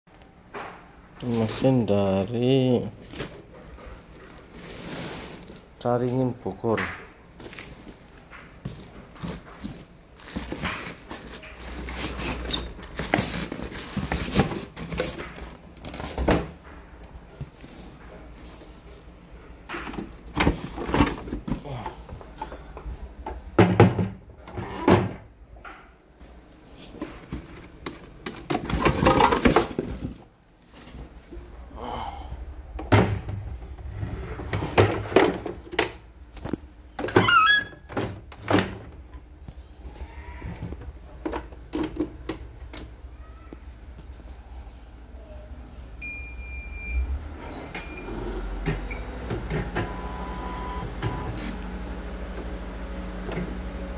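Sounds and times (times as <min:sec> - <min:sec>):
knocks and thunks: 0:23.6 - 0:24.2, 0:32.8 - 0:33.6.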